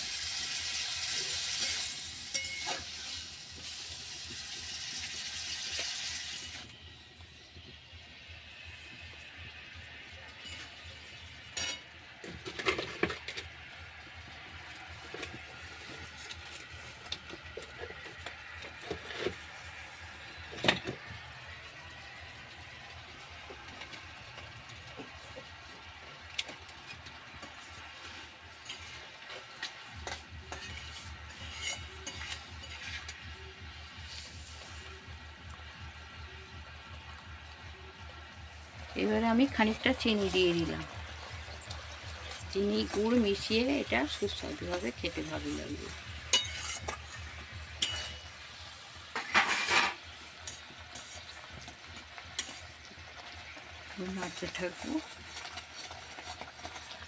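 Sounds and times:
soft sizzle: 0:00.0 - 0:57.0
metal spatula scraping a pot: 0:00.8 - 0:03.8, 0:10.3 - 0:13.5, 0:14.9 - 0:20.7, 0:26.8 - 0:35.0, 0:41.2 - 0:53.5
spatula clinking against pot: 0:01.6 - 0:02.9, 0:11.5 - 0:11.9, 0:30.0 - 0:33.2, 0:46.3 - 0:47.2, 0:47.8 - 0:48.3
syrup simmering: 0:12.0 - 0:49.3, 0:50.0 - 0:57.0.

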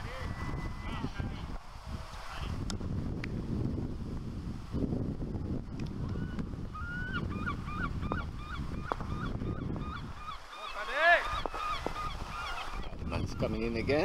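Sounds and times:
wind rumble on microphone: 0:00.0 - 0:10.5, 0:11.1 - 0:14.0
geese honking: 0:08.5 - 0:13.7.

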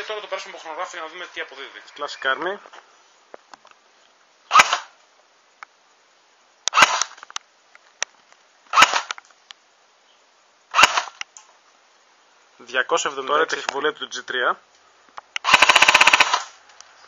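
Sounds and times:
airsoft gun shots: 0:04.5 - 0:04.9, 0:06.7 - 0:07.2, 0:08.7 - 0:09.2, 0:10.7 - 0:11.2, 0:15.4 - 0:16.5.

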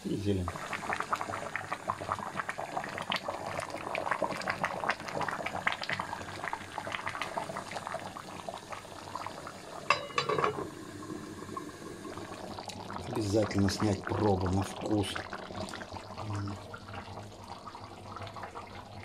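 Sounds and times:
stew bubbling in a pot: 0:00.0 - 0:19.0
metal lid clanking on pot: 0:09.9 - 0:10.8.

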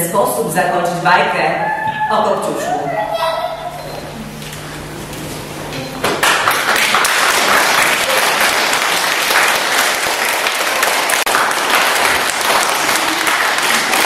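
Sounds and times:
children applauding: 0:06.2 - 0:14.0.

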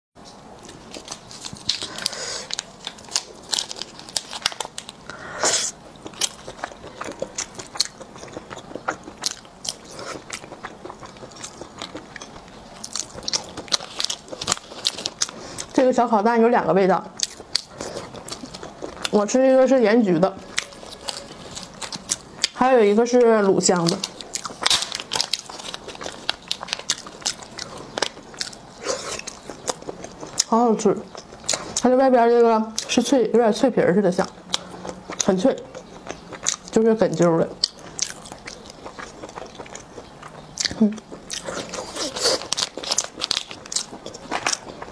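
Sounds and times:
plastic pouch crinkling and tearing: 0:00.9 - 0:05.0
plastic snack packet crinkling: 0:00.9 - 0:05.0, 0:23.8 - 0:28.2.

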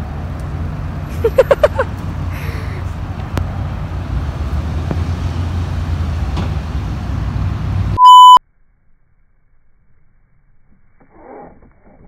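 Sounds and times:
low rumble of road traffic: 0:00.0 - 0:12.0
short electronic beep: 0:08.0 - 0:08.4.

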